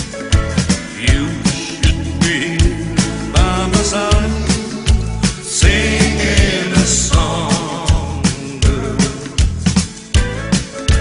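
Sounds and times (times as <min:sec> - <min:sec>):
pop band playing: 0:00.0 - 0:11.0
person singing held line: 0:01.0 - 0:08.6.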